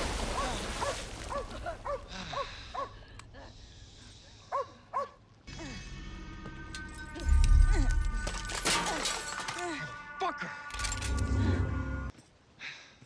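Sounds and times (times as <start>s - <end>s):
low music drone: 5.5s - 8.6s, 9.4s - 12.1s.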